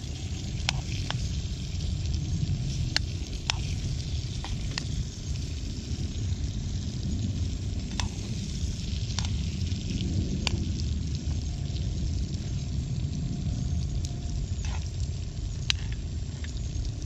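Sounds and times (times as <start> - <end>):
fish sizzling in a pan: 0.0 - 17.0
steady low rumble: 0.0 - 17.0
spoon stirring in a pan: 0.6 - 1.2.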